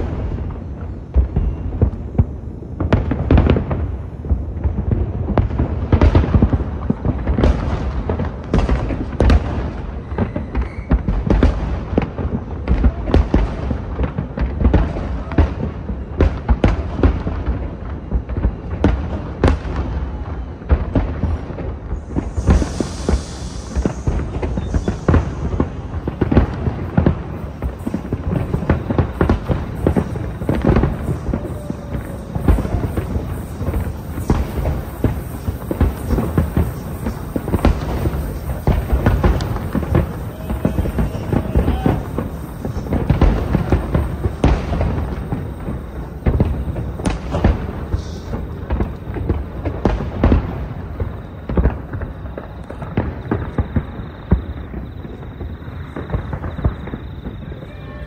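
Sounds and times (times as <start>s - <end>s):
fireworks bangs and booms: 0.0s - 58.0s.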